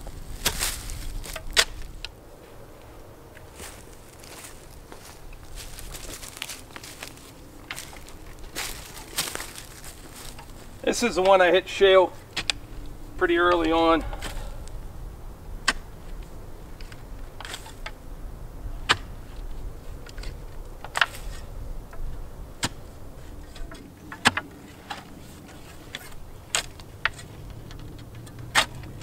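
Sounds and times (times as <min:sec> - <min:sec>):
spade chopping into stony soil: 0:14.1 - 0:14.7.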